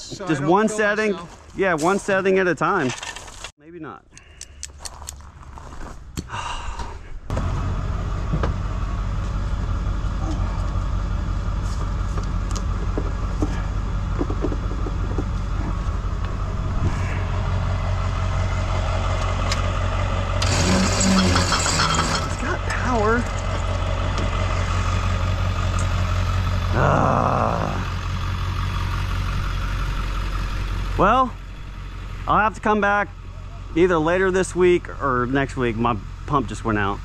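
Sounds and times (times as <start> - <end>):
motor humming: 12.2 - 22.1.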